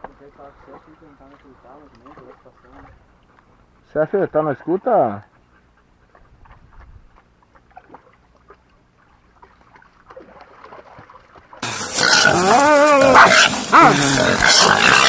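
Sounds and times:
faint splashes in mud: 0:00.0 - 0:03.6, 0:06.1 - 0:11.7
dogs and boar commotion: 0:00.4 - 0:15.0.

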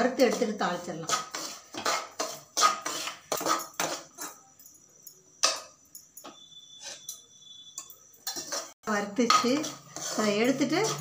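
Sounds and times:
metal spoon scraping a pan: 0:00.0 - 0:04.6, 0:05.4 - 0:11.0
spoon knocking on pan: 0:09.2 - 0:09.8.

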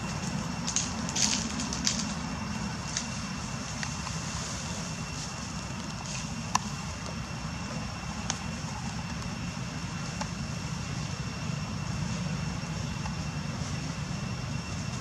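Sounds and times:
dry crackles and clicks: 0:00.0 - 0:02.2, 0:02.8 - 0:04.2
faint high whine: 0:00.0 - 0:15.0.

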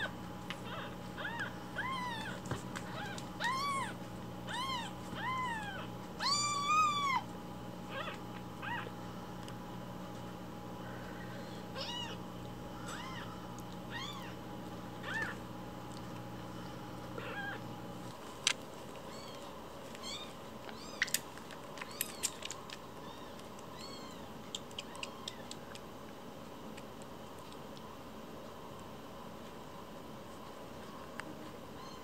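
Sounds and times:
kittens mewing: 0:00.0 - 0:09.0, 0:11.0 - 0:14.4, 0:15.0 - 0:15.5, 0:17.1 - 0:17.7
steady low hum: 0:00.0 - 0:32.0.

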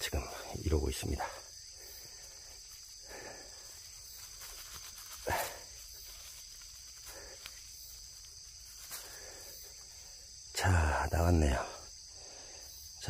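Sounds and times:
insects trilling: 0:00.0 - 0:13.0
scrape of soil and dry leaves: 0:01.8 - 0:10.2.

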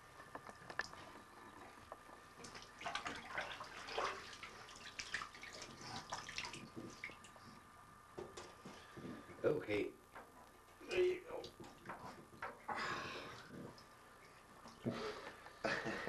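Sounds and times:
water splashing in a bathtub: 0:00.8 - 0:07.7, 0:11.3 - 0:15.3.

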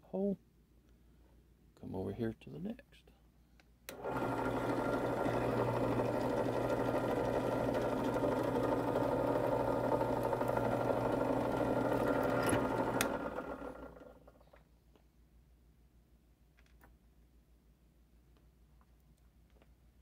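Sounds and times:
drill press motor running: 0:03.9 - 0:14.4
motor spinning down: 0:03.9 - 0:14.4.

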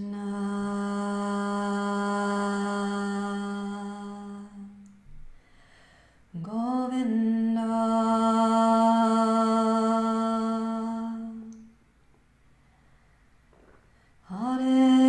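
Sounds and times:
woman singing a devotional chant: 0:00.0 - 0:04.8, 0:06.4 - 0:11.6, 0:14.2 - 0:15.0.

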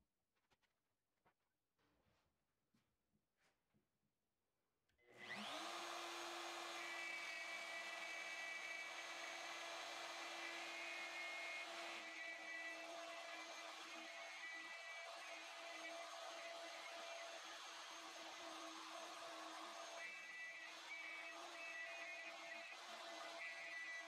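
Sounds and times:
router whining: 0:05.1 - 0:24.0.

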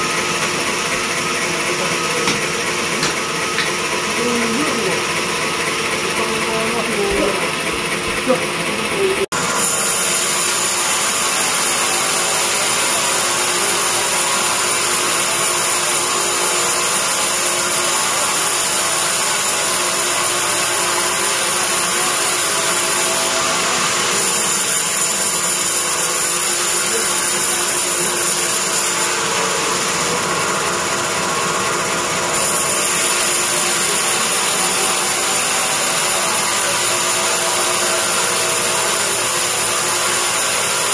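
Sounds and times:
bandsaw sawing a log: 0:00.0 - 0:40.9.

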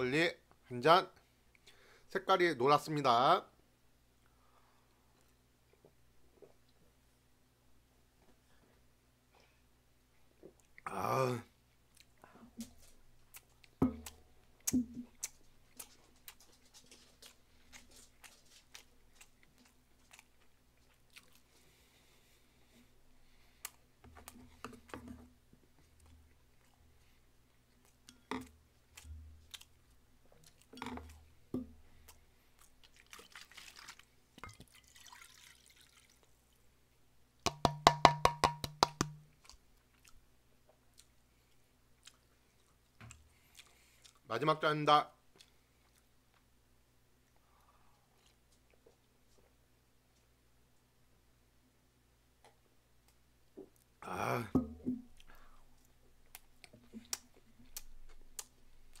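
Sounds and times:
chewing: 0:11.8 - 0:24.9, 0:25.8 - 0:35.1, 0:39.3 - 0:44.3, 0:45.3 - 0:46.5, 0:47.2 - 0:50.3, 0:55.1 - 0:59.0.

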